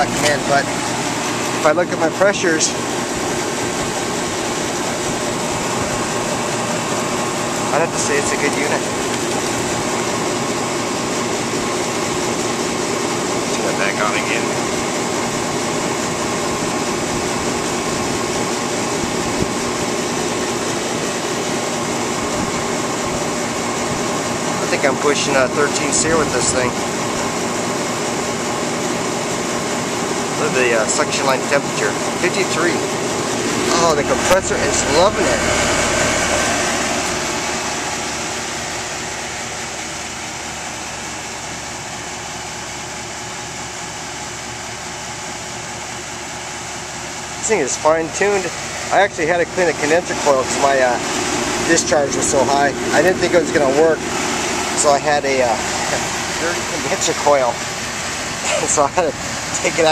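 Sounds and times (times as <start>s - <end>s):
air conditioner fan rushing air: 0.0s - 59.9s.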